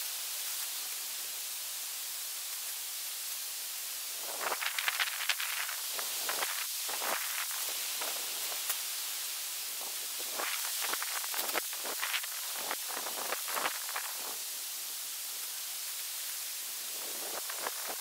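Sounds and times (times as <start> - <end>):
steady hiss: 0.0 - 18.0
tent fabric rustling and flapping: 4.2 - 8.9, 9.8 - 14.4, 16.8 - 18.0.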